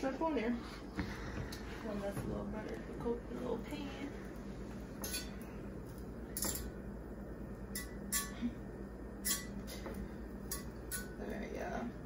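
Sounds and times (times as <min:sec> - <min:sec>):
metal fork clinking on grill pan: 0:09.2 - 0:09.5, 0:10.5 - 0:11.2.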